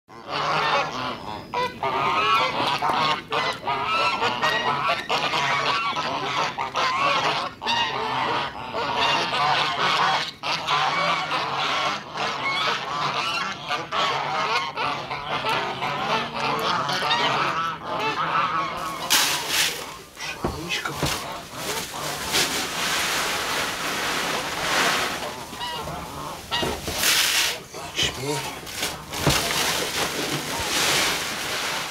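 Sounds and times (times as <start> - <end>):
geese honking and cackling: 0.1 - 31.9.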